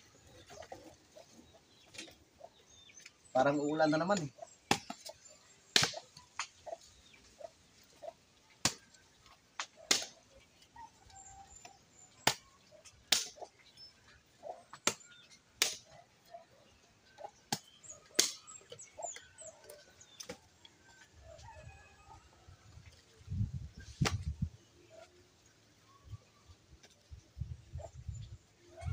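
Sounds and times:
birds chirping faintly: 0.0s - 28.9s
machete chopping branches: 4.6s - 6.6s, 8.6s - 8.9s, 9.6s - 10.2s, 12.2s - 13.5s, 14.7s - 16.0s, 17.5s - 18.8s, 24.0s - 24.3s.

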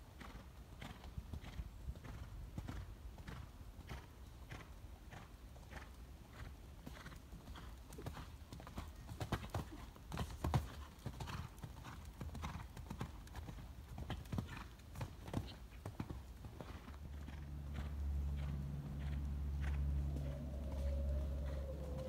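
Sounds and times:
steady low drone: 17.6s - 22.0s.

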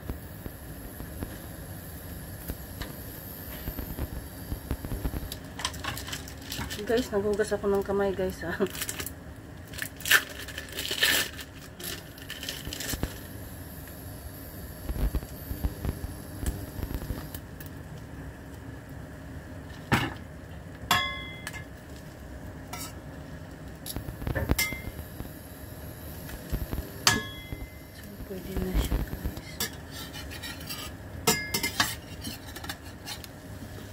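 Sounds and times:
metal clinking on frying pan: 20.9s - 21.6s, 31.3s - 31.9s.

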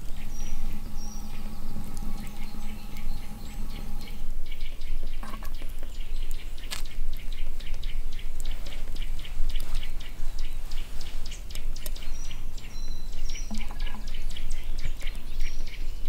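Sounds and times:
wood fire crackling: 0.0s - 4.5s
low hum: 0.0s - 5.5s.

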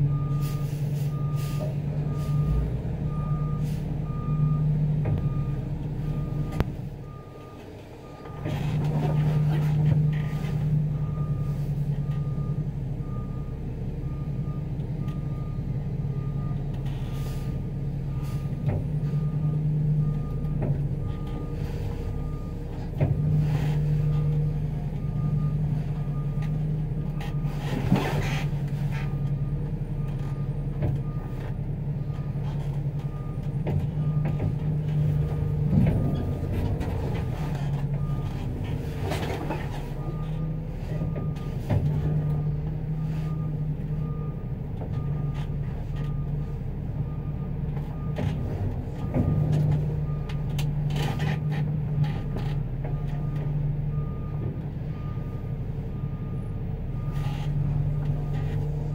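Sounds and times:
truck engine humming: 0.0s - 58.9s
clunks: 5.0s - 13.2s, 16.4s - 55.1s
backup alarm beeping: 34.0s - 41.7s.

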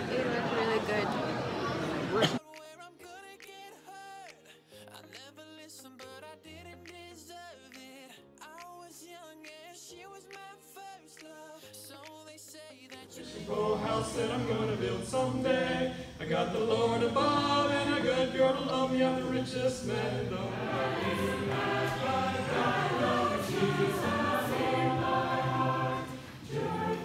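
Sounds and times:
mixed choir singing a cappella: 13.1s - 27.0s.

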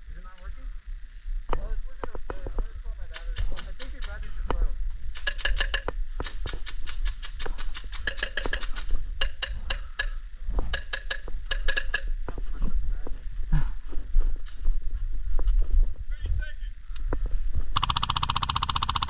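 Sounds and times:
steady low rumble: 0.0s - 18.1s
airsoft gunfire: 5.1s - 10.1s, 10.7s - 12.1s, 17.8s - 19.0s.

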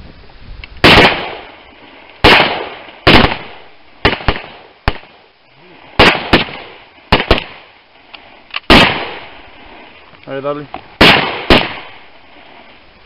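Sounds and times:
gunshots with echo: 0.8s - 1.5s, 2.2s - 5.1s, 6.0s - 7.6s, 8.7s - 9.3s, 11.0s - 12.0s.

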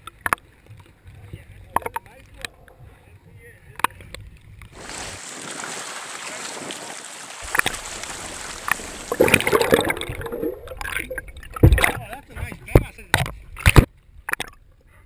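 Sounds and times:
water sloshing and bubbling: 4.3s - 14.8s
underwater water rushing hiss: 4.8s - 11.2s.

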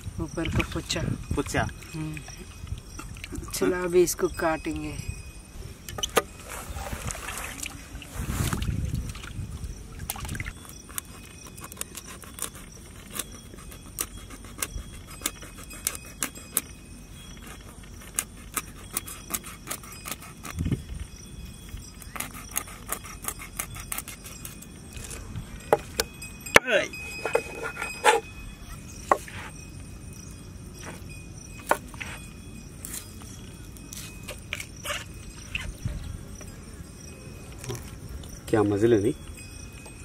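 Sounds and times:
knife scraping fish scales: 10.9s - 16.7s, 17.4s - 20.6s, 22.0s - 25.3s, 27.0s - 29.6s, 33.9s - 35.8s.

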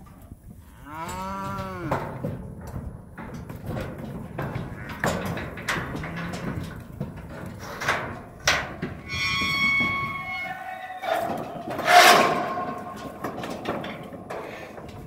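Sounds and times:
metal gates and panels clanking: 1.0s - 15.0s
metal gate squealing: 9.0s - 14.0s
loud ringing metal clang: 11.1s - 14.1s.

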